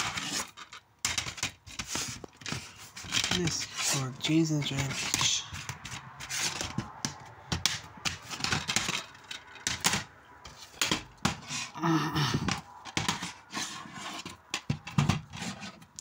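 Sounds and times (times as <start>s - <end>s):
plastic cases clicking and clattering: 0.0s - 3.8s, 4.6s - 11.7s, 12.3s - 16.0s.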